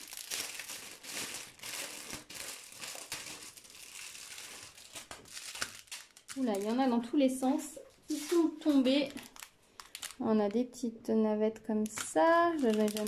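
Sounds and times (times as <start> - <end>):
plastic crinkling and rustling: 0.0 - 10.2, 11.8 - 13.0.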